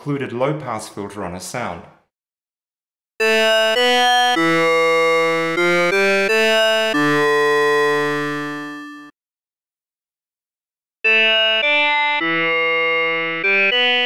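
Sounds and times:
synthesizer notes: 3.2s - 9.1s, 11.0s - 14.0s.

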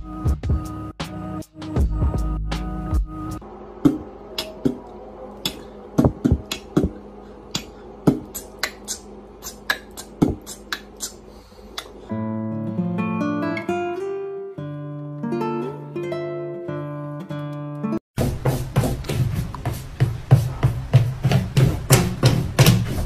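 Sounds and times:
acoustic guitar music: 12.1s - 18.0s.

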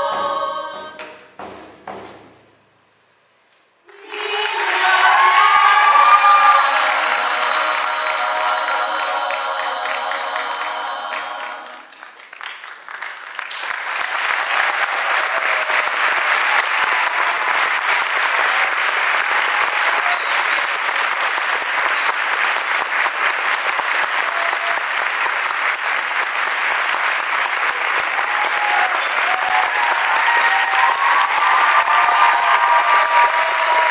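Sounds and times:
women's choir singing: 0.0s - 1.2s, 3.9s - 11.9s
audience applauding: 3.9s - 33.9s.

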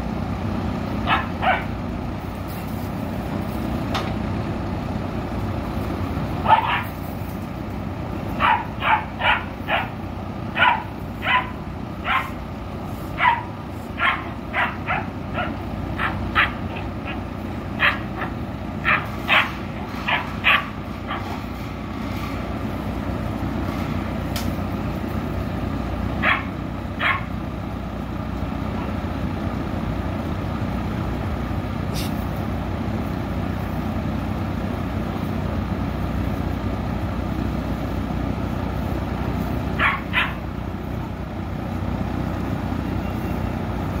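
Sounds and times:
steady low rumble: 0.0s - 42.9s
puppies barking: 1.0s - 1.8s, 6.4s - 7.1s, 8.3s - 21.6s, 26.2s - 27.4s, 39.7s - 40.6s.

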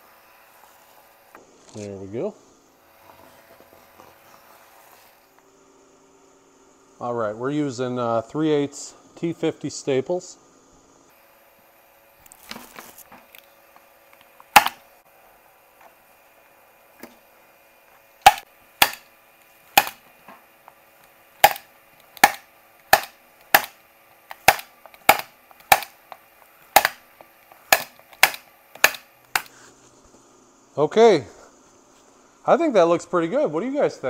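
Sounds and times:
staple gun snaps: 27.7s - 29.5s.

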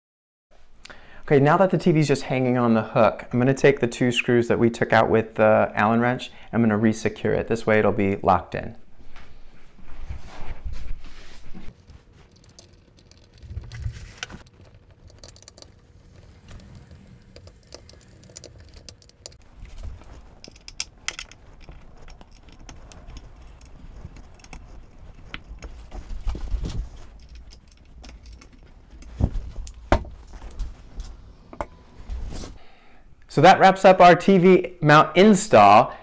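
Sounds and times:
metal clinks and rattles: 11.8s - 30.7s.

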